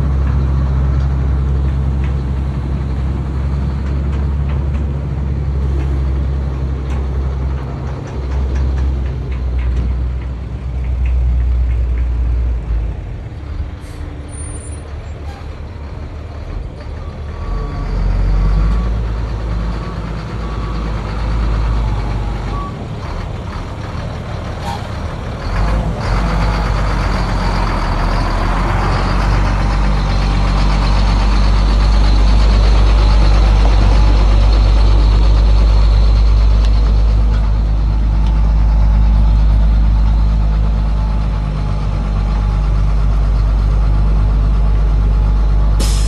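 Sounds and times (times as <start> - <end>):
truck diesel engine driving: 0.0 - 46.0.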